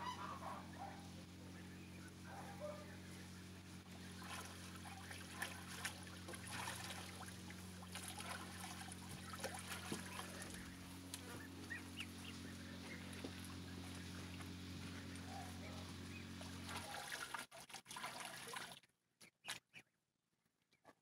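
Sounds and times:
goose calls: 0.0 - 1.2
water splashing: 3.9 - 18.8
gosling peeps: 8.0 - 17.0.

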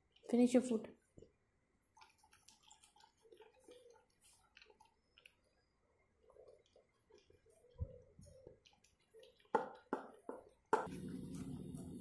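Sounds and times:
dog eating from a bowl: 2.0 - 5.3, 10.8 - 12.0.

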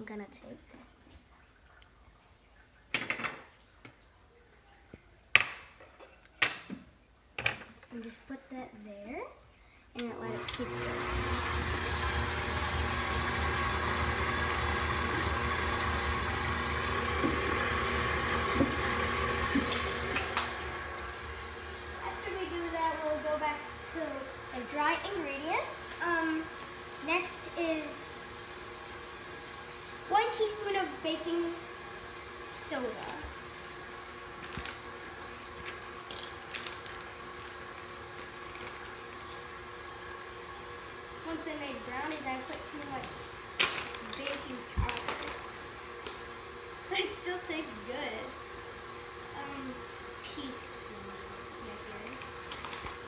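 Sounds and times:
electric mixer beating dough: 10.0 - 53.0.

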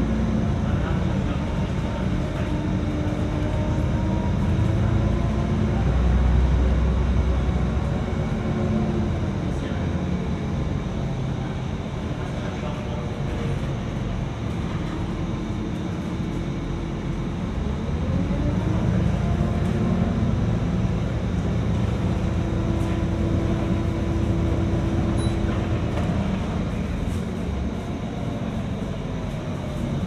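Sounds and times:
bus engine rumbling: 0.0 - 30.0.

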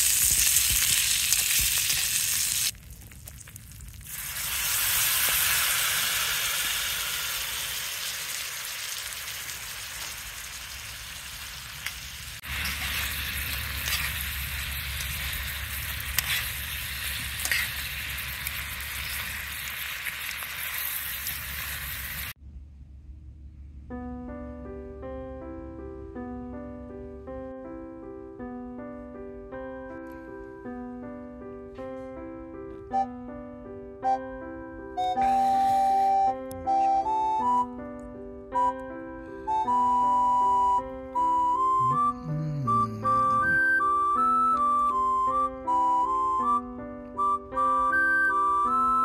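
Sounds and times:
meat sizzling in a skillet: 0.0 - 22.4
background music bright notes: 23.9 - 49.0.

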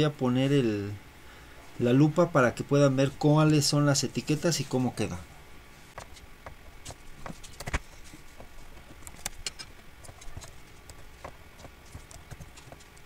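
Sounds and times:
keyboard and mouse clicks: 6.0 - 13.0.

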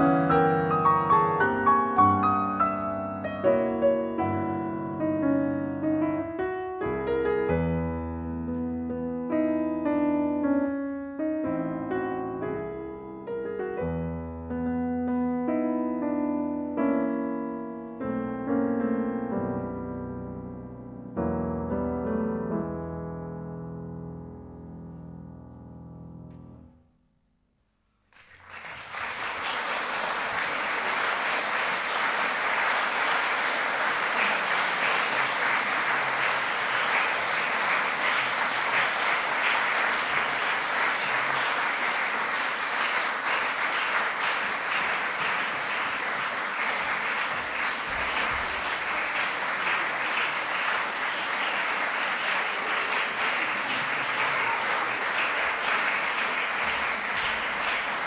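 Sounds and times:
audience applauding: 28.1 - 58.0.

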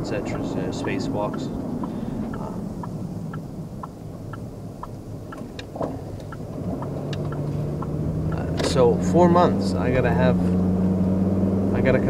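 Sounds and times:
road and engine rumble: 0.0 - 12.0
light ticking: 1.3 - 8.8.

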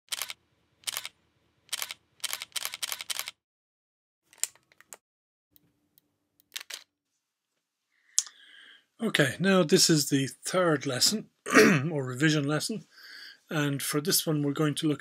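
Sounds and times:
camera shutter clicks: 0.1 - 1.1, 1.7 - 3.4.

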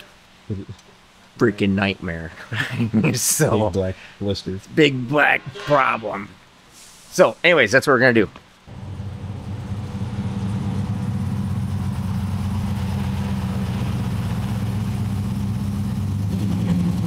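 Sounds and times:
engine idling: 8.7 - 17.0.

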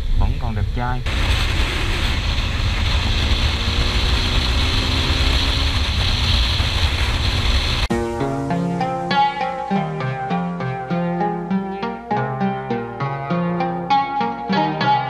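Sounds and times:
wind rushing over microphone: 0.0 - 7.9
motorcycle engine running: 1.1 - 7.9.

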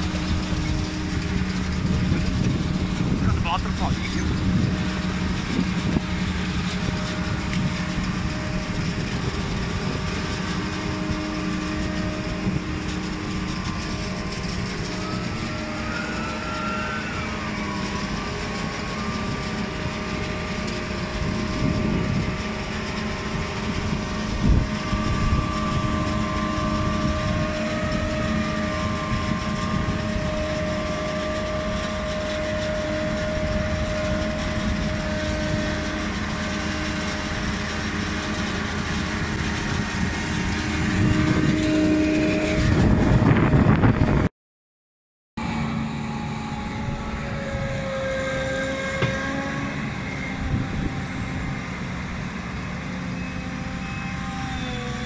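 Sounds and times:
harvester mechanical rumble: 0.0 - 44.3, 45.4 - 55.0
high wavering machine whine: 0.0 - 44.3, 45.4 - 55.0.

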